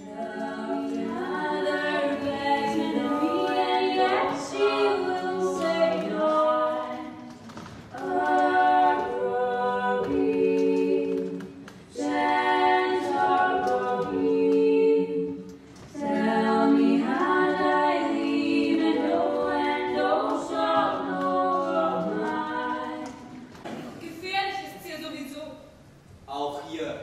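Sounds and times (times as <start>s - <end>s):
woman singing into microphone: 0.0s - 7.2s.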